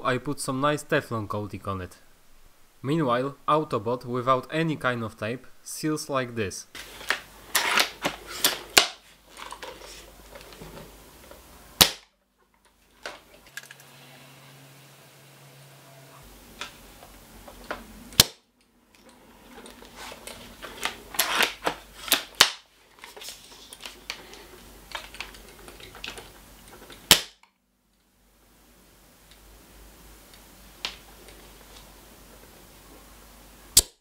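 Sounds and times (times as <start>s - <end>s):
loud sharp snaps: 18.2s - 18.5s, 27.1s - 27.6s, 33.8s - 34.0s.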